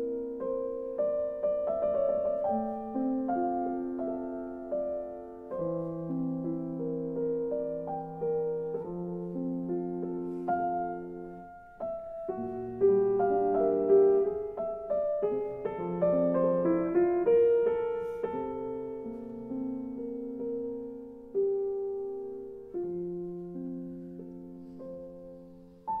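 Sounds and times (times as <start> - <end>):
slow piano music: 0.0 - 26.0.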